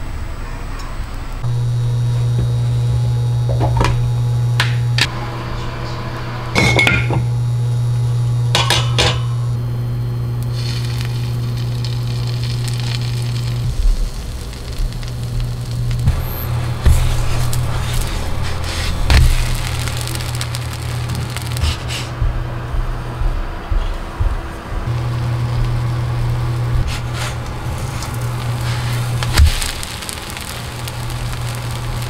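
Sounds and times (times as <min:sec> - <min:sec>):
induction cooktop humming: 0:00.0 - 0:32.0
kitchen utensils clinking: 0:06.6 - 0:07.2
batter sizzling in a pan: 0:09.9 - 0:22.1, 0:24.9 - 0:32.0.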